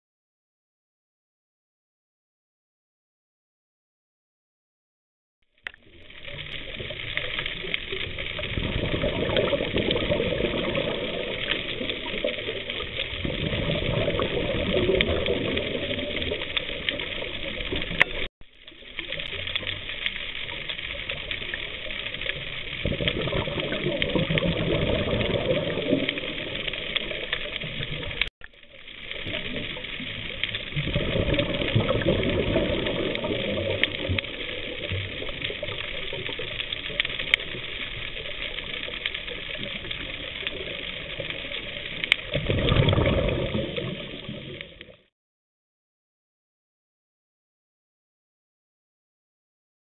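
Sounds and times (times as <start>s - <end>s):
underwater rushing noise: 5.6s - 45.1s.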